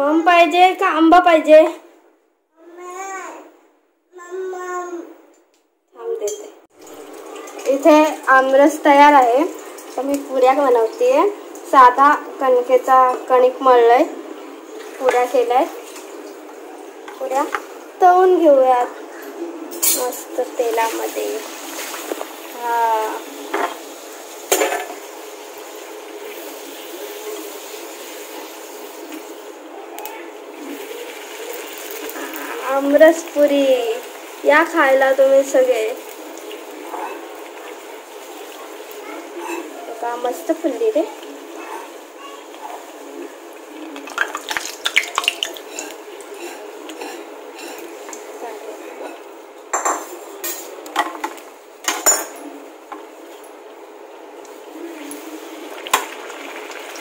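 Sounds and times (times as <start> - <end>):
bread deep-frying in oil: 6.2 - 14.1, 20.0 - 48.8, 54.3 - 57.0.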